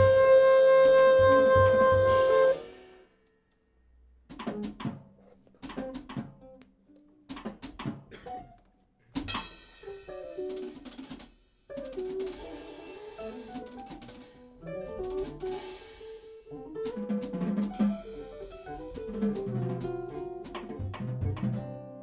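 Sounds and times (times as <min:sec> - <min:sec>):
band playing drums and guitars: 0:16.8 - 0:21.8.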